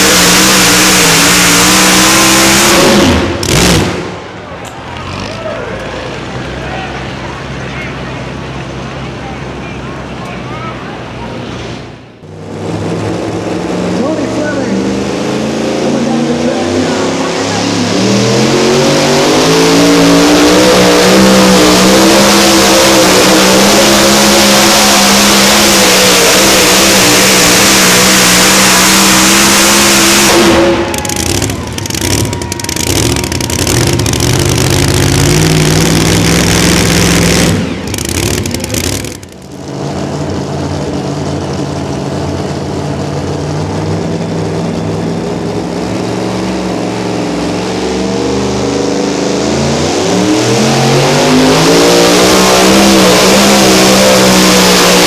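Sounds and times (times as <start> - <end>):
high-power engine revving: 0.0 - 4.3, 12.2 - 41.4, 42.2 - 55.0.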